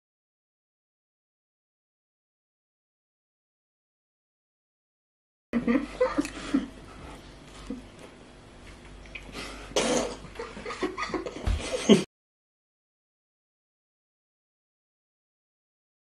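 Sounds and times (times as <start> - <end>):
man coughing: 9.8 - 10.3.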